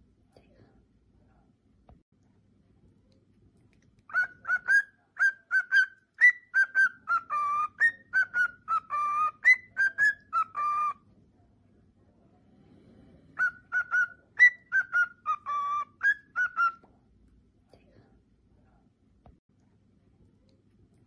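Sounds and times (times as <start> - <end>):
cockatiel whistling: 4.1 - 11.0, 13.4 - 16.8.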